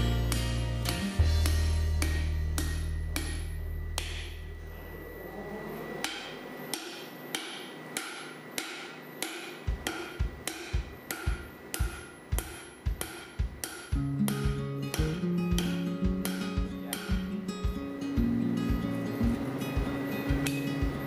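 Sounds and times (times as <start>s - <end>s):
background music: 0.0s - 4.5s, 9.8s - 21.0s
hammer striking steel on anvil: 0.0s - 4.6s, 6.0s - 21.0s.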